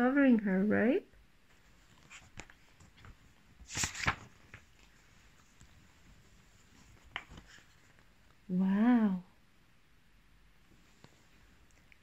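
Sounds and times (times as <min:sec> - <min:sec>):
paper page swishing: 0:01.8 - 0:08.0.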